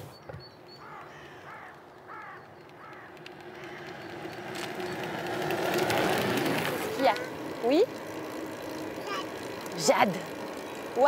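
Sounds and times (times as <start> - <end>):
bird calling: 0.0 - 5.9
bicycle tyres crunching on gravel: 0.8 - 11.0.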